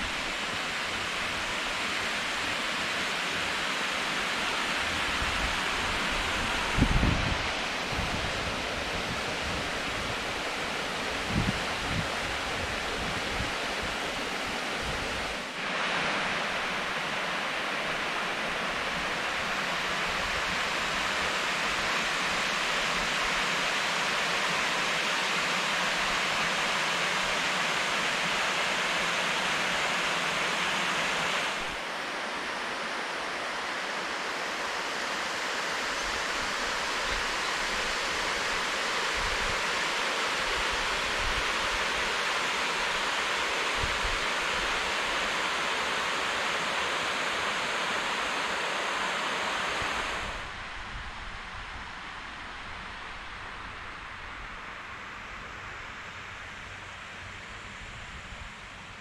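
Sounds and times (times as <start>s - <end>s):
water rushing over weir: 0.0s - 59.0s.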